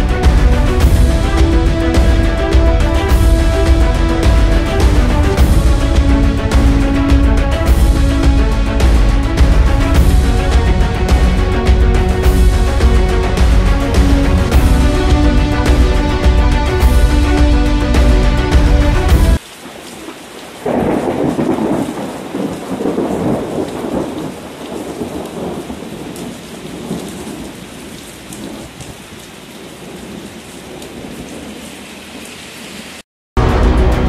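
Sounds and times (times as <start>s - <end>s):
music: 0.0s - 19.4s, 33.4s - 34.0s
thunder rumbling: 0.0s - 19.4s, 20.6s - 31.8s
heavy rain: 0.0s - 34.0s.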